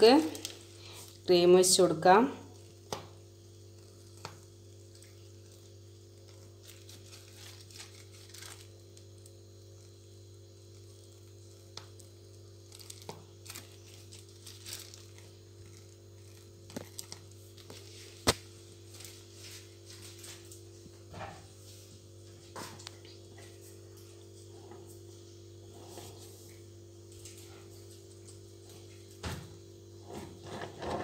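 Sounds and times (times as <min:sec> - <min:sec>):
plastic piping bag crinkling: 0:00.0 - 0:01.3, 0:02.5 - 0:20.6
steady low hum: 0:00.0 - 0:31.0.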